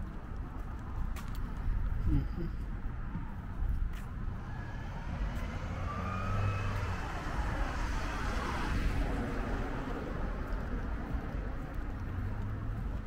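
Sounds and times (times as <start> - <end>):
car driving past: 4.3 - 11.3.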